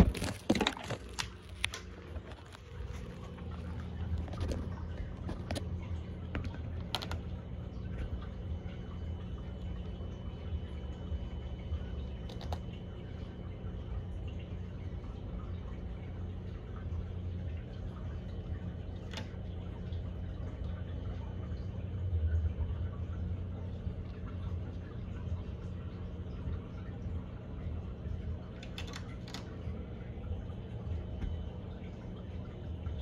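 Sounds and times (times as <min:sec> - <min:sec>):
aquarium pump hum: 0:00.0 - 0:33.0
water trickling and bubbling: 0:00.0 - 0:33.0.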